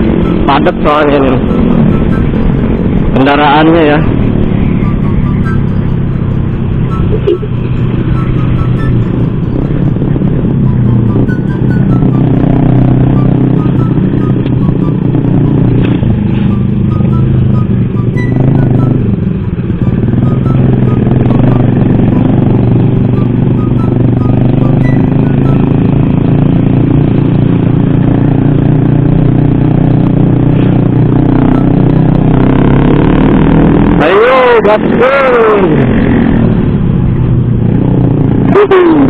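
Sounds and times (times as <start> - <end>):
motorcycle engine cruising: 0.0 - 39.0.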